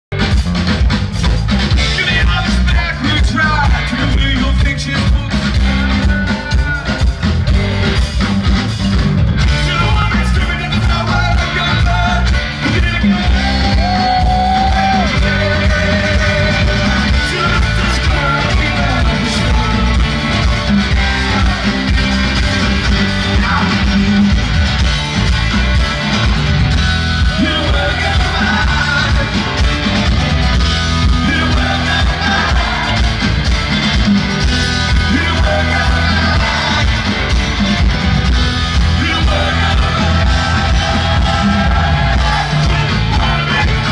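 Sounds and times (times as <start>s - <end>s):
live rock band playing: 0.1s - 43.9s
person singing: 9.5s - 24.0s, 27.2s - 29.6s, 34.9s - 37.4s, 38.8s - 43.9s.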